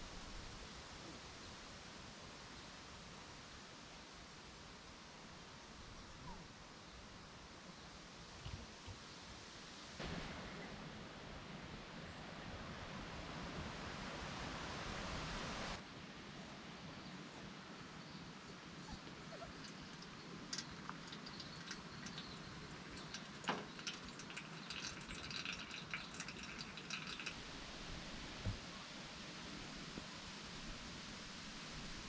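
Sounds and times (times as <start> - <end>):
wind rustling leaves: 0.0 - 32.0
hot water pouring and dripping: 19.0 - 28.6.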